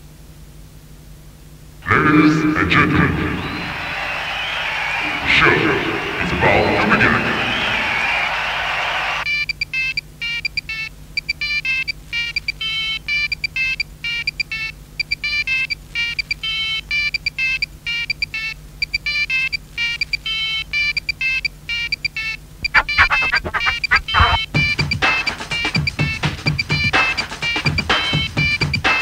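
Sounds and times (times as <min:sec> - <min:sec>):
rhythmic electronic beeping: 0:22.6 - 0:27.1.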